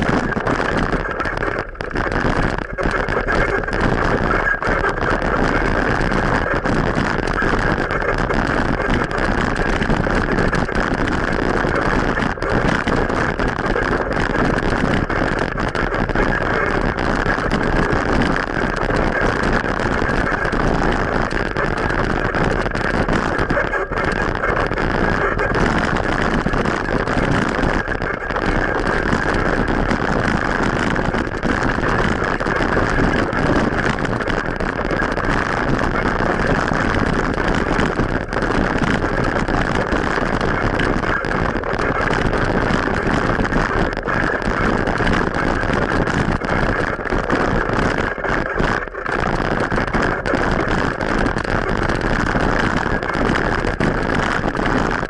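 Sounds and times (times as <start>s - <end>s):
bicycle tyre road noise: 0.0s - 55.0s
wind noise on microphone: 0.0s - 55.0s.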